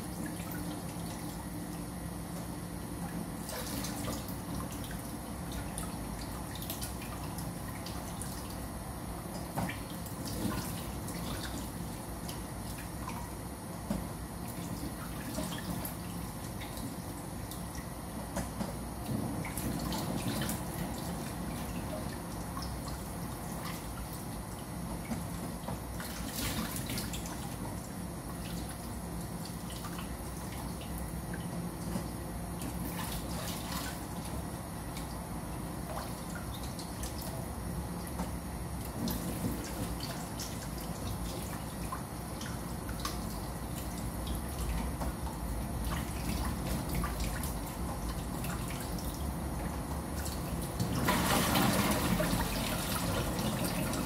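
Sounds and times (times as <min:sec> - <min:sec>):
water splashing and dripping: 0:50.2 - 0:54.0.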